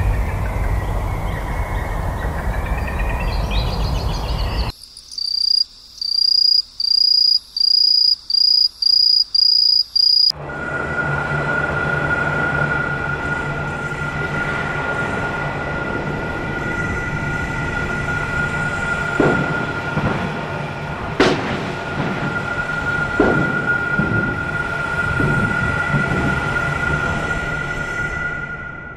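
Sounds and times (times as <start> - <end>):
insect chirping in pulses: 0.1 - 10.3.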